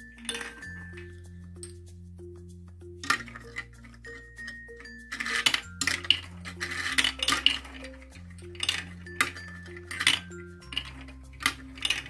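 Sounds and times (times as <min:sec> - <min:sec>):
marbles rolling on plastic track: 0:00.0 - 0:01.8, 0:03.0 - 0:12.0
background music with bass line: 0:00.0 - 0:12.0.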